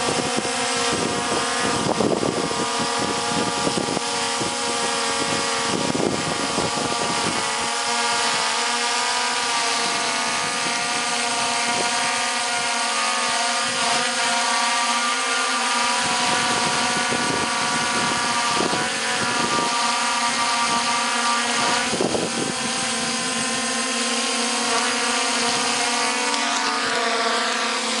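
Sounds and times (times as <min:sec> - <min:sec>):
drone propeller whine: 0:00.0 - 0:28.0.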